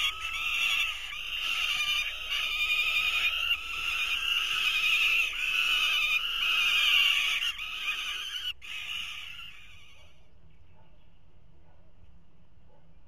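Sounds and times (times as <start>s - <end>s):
young falcons begging calls: 0.0s - 10.1s.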